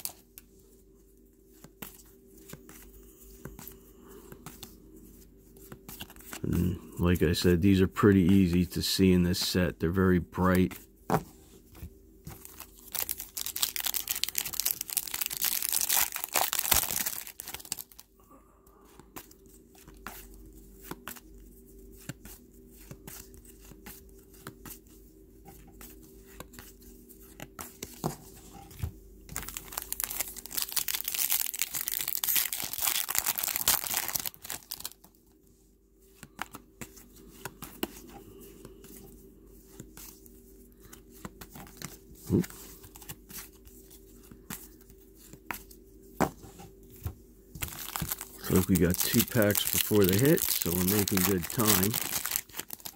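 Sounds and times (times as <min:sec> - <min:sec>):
foil wrappers tearing and crinkling: 0:12.4 - 0:18.1, 0:29.3 - 0:35.0, 0:47.6 - 0:52.9.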